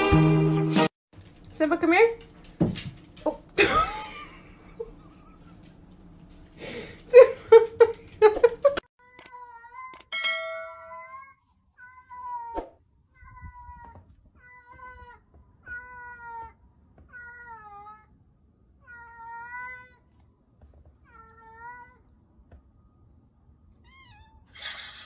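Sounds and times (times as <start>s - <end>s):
cat meowing: 10.8s - 18.1s, 18.8s - 20.0s, 21.0s - 22.0s, 23.8s - 24.6s.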